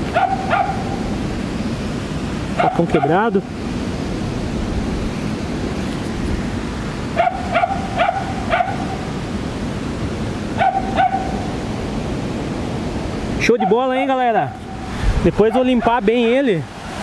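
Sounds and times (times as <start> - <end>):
dog yipping: 0.1 - 0.9, 2.6 - 3.2, 7.2 - 8.9, 10.6 - 11.4, 13.6 - 13.8.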